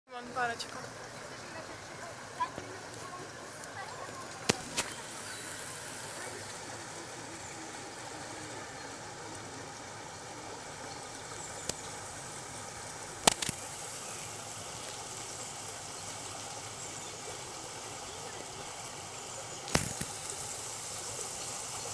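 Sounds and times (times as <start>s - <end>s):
outdoor background noise: 0.1s - 21.9s
sharp clicks: 13.2s - 13.7s, 19.7s - 20.2s.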